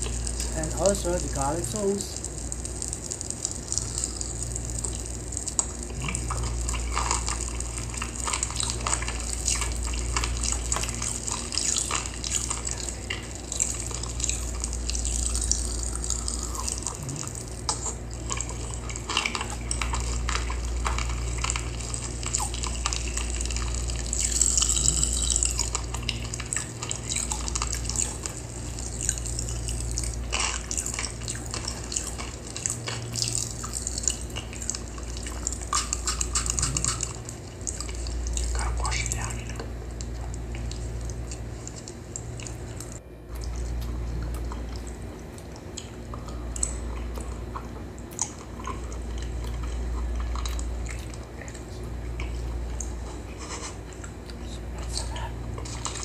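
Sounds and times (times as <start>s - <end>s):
wet chewing: 2.1s - 56.0s
lip-smacking: 2.2s - 56.0s
slurping noodles: 5.9s - 38.6s
wet mouth clicks: 15.0s - 18.0s, 24.2s - 28.4s, 30.4s - 39.2s.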